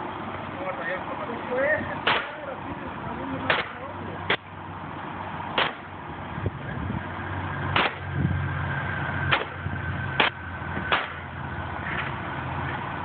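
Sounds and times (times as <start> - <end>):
steady low hum: 0.0 - 13.0
sharp nailing cracks: 2.0 - 2.4, 3.5 - 4.4, 5.6 - 5.9, 7.8 - 8.0, 9.3 - 9.6, 10.2 - 11.2.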